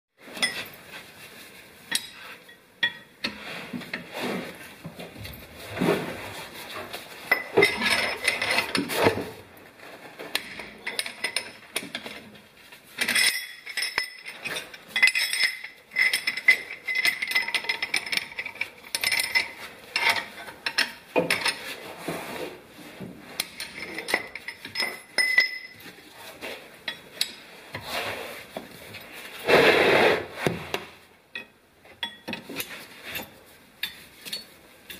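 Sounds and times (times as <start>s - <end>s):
metal hand tools clinking: 13.0s - 21.7s, 23.4s - 26.0s.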